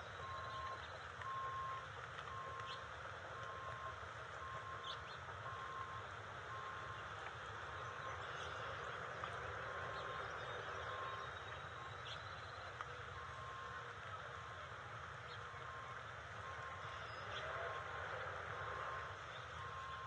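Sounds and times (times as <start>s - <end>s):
faint bird chirps: 0.0s - 1.8s, 4.4s - 13.9s, 15.2s - 18.0s
distant reversing alarm beeps: 0.0s - 20.0s
low engine hum: 0.0s - 20.0s.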